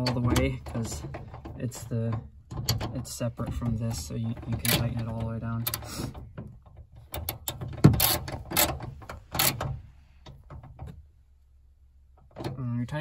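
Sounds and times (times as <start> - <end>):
socket ratchet clicking: 7.2 - 9.6.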